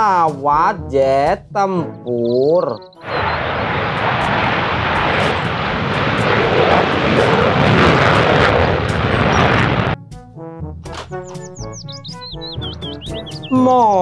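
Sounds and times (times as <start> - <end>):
jet engines roaring: 3.0 - 10.0.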